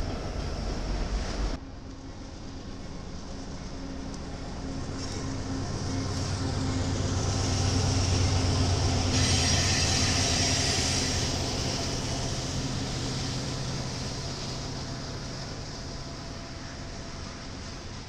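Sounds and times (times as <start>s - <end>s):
train rumbling past: 0.0s - 18.0s
train hiss: 3.8s - 18.0s.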